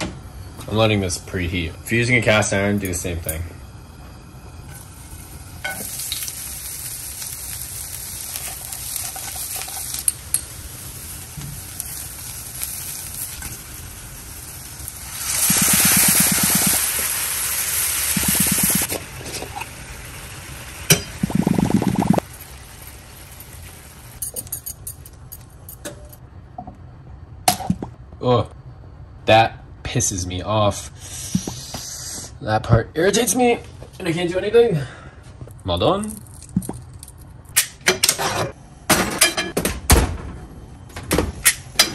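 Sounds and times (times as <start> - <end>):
vegetables sizzling in hot oil: 4.7 - 24.2.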